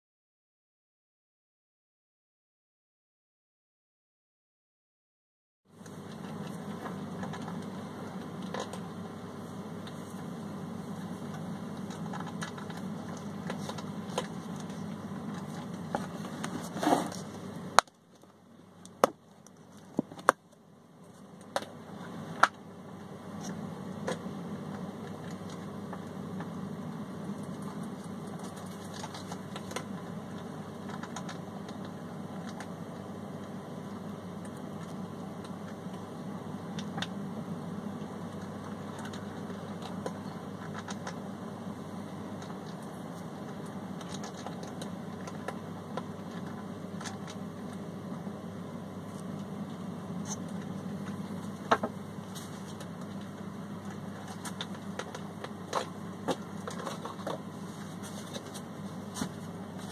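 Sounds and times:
low background hum: 0:05.7 - 0:59.9.

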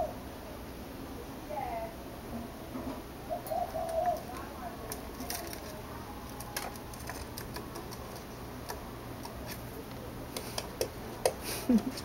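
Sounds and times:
animals moving in wire cage: 0:03.4 - 0:12.0.

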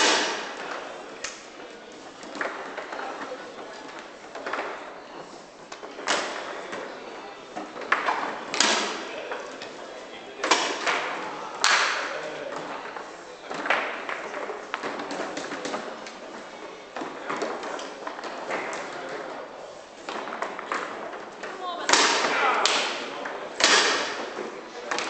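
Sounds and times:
foosball striking ball: 0:00.0 - 0:01.5, 0:07.5 - 0:09.8, 0:10.4 - 0:19.3, 0:20.0 - 0:25.0.

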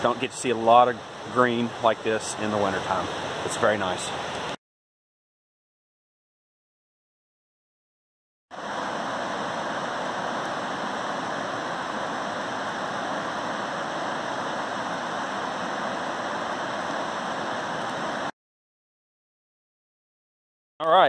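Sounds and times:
creek rushing over rapids: 0:00.0 - 0:04.6, 0:08.5 - 0:18.3.

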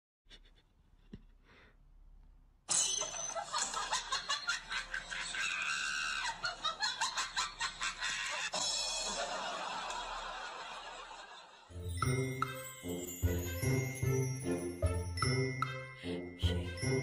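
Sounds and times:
shrieking laughter: 0:03.0 - 0:11.7.

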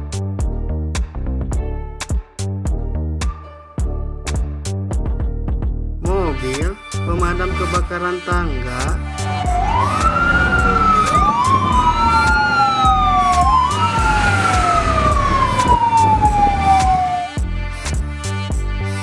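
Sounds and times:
fire engine sirens wailing: 0:08.9 - 0:17.4.

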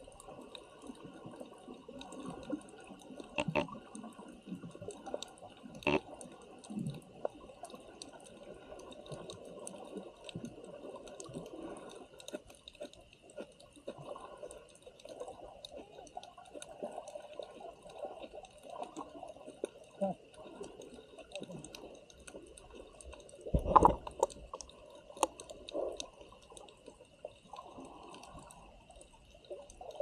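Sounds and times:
water sloshing and bubbling: 0:00.0 - 0:30.0
small clicks: 0:21.2 - 0:30.0.

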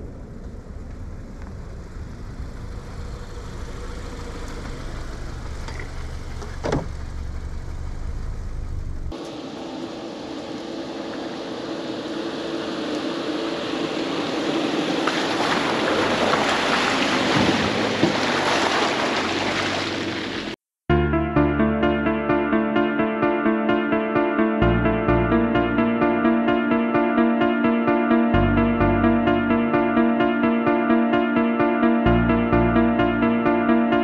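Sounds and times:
car rumbling on dirt trail: 0:00.0 - 0:20.6
rushing noise: 0:09.1 - 0:20.6.

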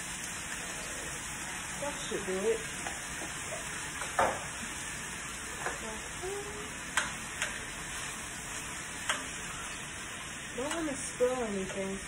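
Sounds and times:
vegetables sizzling in a skillet: 0:00.0 - 0:12.0
spoon clicking against pan: 0:06.9 - 0:07.6, 0:09.0 - 0:09.3.

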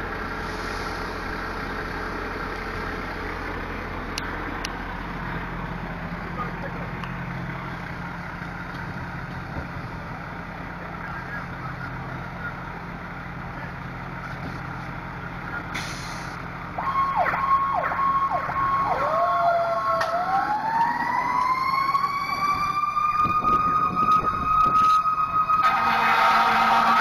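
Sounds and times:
engine idling: 0:00.0 - 0:27.0
fire engine sirens: 0:00.0 - 0:27.0
horn blast: 0:25.6 - 0:27.0.

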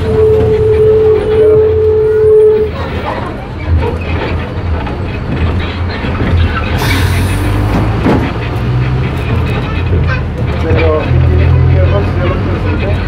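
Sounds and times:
steady high tone: 0:00.0 - 0:02.8
vehicle interior rumble: 0:00.0 - 0:13.0
rattles and knocks: 0:03.6 - 0:06.8.

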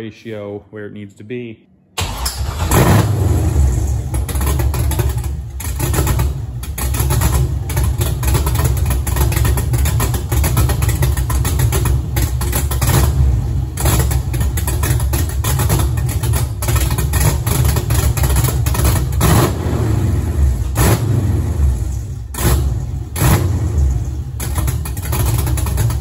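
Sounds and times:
engine running with fast knocking: 0:04.1 - 0:19.6, 0:23.2 - 0:26.0.

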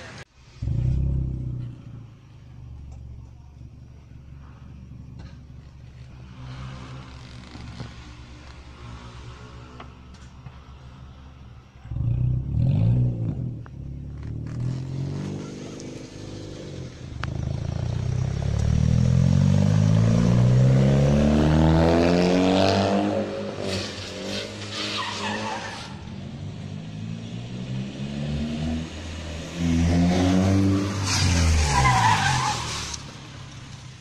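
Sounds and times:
car engine revving: 0:00.4 - 0:33.7
tyres squealing on asphalt: 0:23.6 - 0:26.5, 0:30.6 - 0:33.9.

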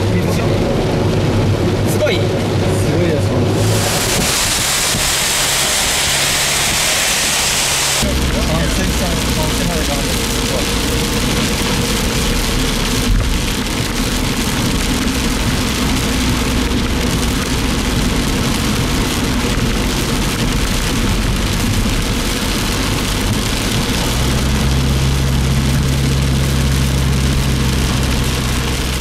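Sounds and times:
engine hum: 0:00.0 - 0:29.0
heavy rain on vehicle: 0:00.0 - 0:29.0
tyres hissing through water: 0:03.5 - 0:11.9.

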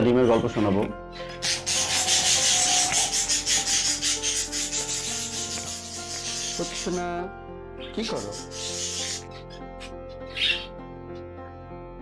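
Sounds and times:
scratching against microphone: 0:01.5 - 0:07.0.

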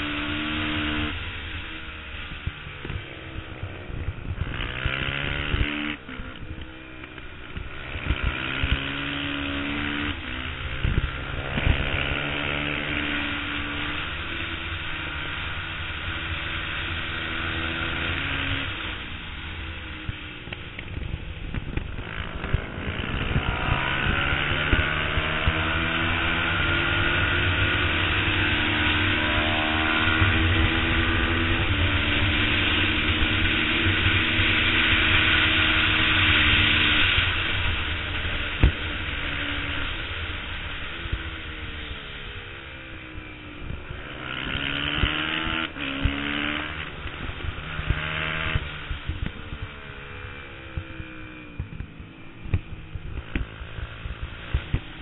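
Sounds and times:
motorcycle engine revving: 0:00.0 - 0:55.0
wind rush over microphone: 0:02.3 - 0:06.6, 0:10.1 - 0:14.0.

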